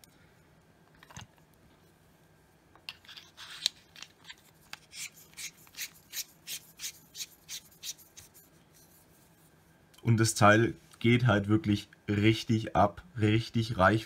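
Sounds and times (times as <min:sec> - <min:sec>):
threads rasping: 0:04.8 - 0:08.5.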